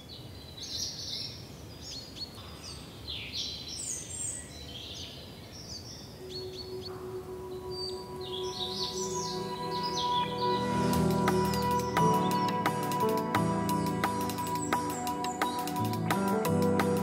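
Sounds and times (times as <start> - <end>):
birds chirping and whistling: 5.6 - 17.0
held musical note: 6.4 - 17.0.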